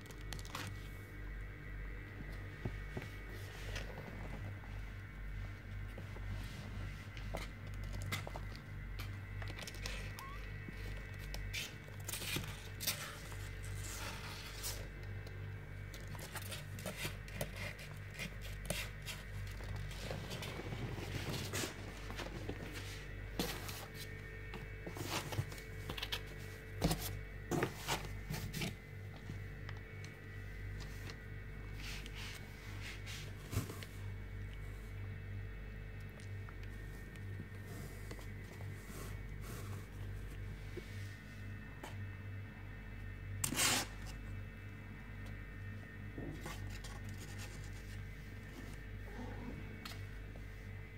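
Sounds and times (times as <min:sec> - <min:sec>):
kittens scratching on cloth: 0:05.4 - 0:15.0, 0:15.9 - 0:28.8, 0:46.4 - 0:48.9.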